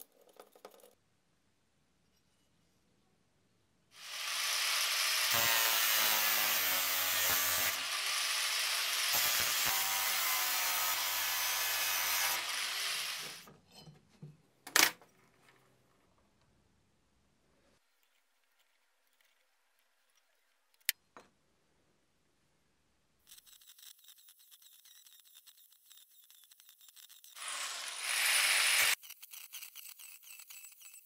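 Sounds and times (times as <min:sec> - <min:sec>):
power tool grinding metal: 0:04.0 - 0:13.5, 0:23.4 - 0:31.0.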